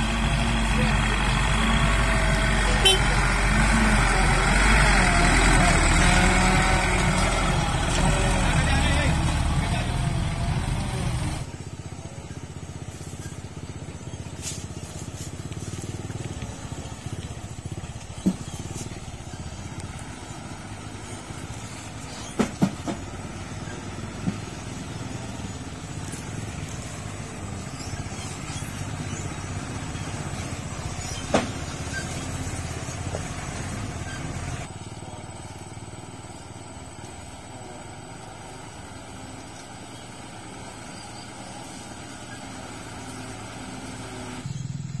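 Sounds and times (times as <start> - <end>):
truck diesel engine running: 0.0 - 45.0.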